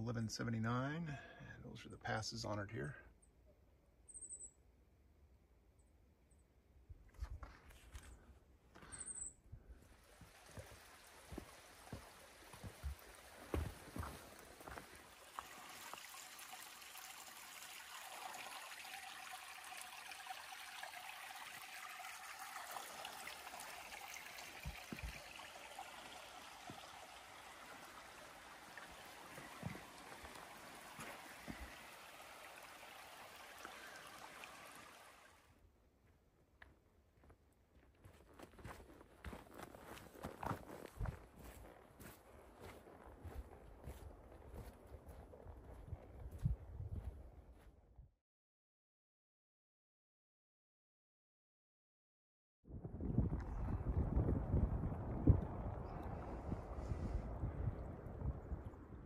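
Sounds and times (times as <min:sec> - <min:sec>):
stream water rushing: 0:10.0 - 0:35.5
footsteps on trail: 0:10.2 - 0:16.0, 0:29.3 - 0:31.7, 0:36.6 - 0:47.7.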